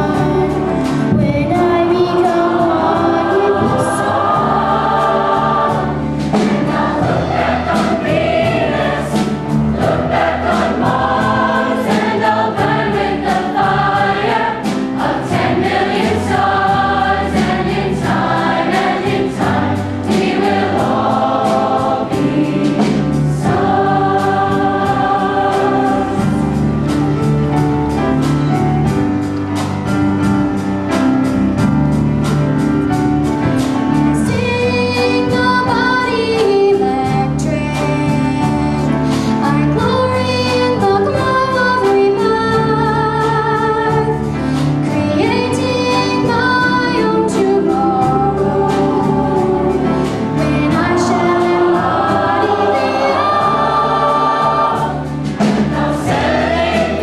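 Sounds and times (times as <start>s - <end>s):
youth choir singing: 0.0s - 27.0s, 34.2s - 44.4s, 45.0s - 57.0s
accompaniment with steady beat: 0.0s - 34.6s, 47.4s - 57.0s.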